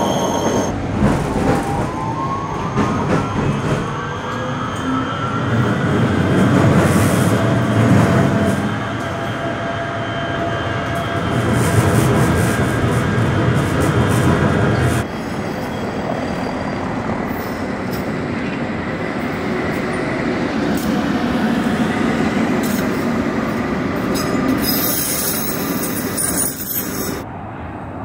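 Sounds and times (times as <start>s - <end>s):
high-pitched wheel squeal: 0.0s - 0.7s
tram rumbling over track: 0.0s - 28.0s.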